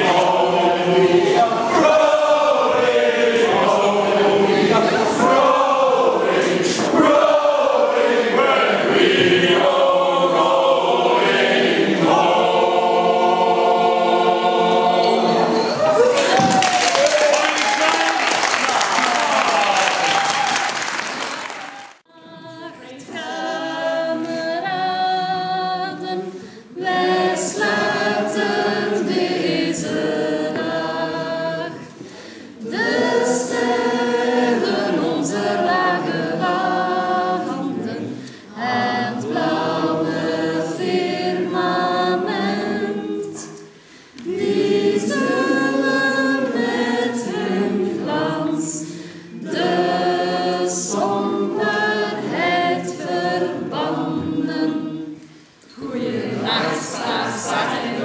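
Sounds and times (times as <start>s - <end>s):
group singing unaccompanied: 0.0s - 17.0s, 22.0s - 58.0s
applause: 16.0s - 22.0s.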